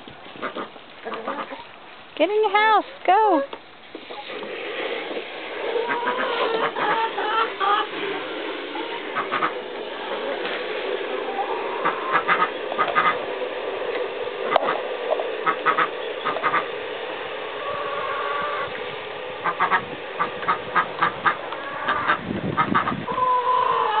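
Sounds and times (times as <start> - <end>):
hens calling: 0.3 - 1.8, 5.6 - 13.3, 14.4 - 16.8, 17.5 - 24.0.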